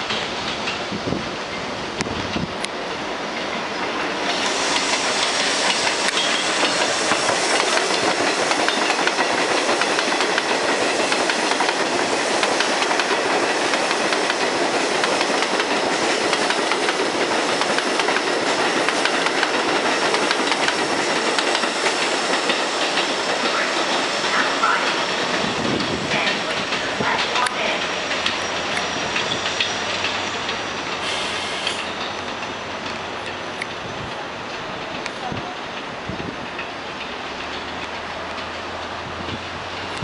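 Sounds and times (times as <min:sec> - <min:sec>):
clickety-clack over rail joints: 0:00.0 - 0:40.0
subway train wheels on rails: 0:00.0 - 0:40.0.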